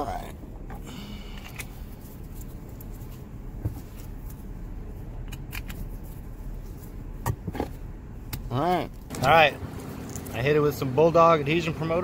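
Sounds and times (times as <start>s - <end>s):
steady low rumble: 0.0s - 12.0s.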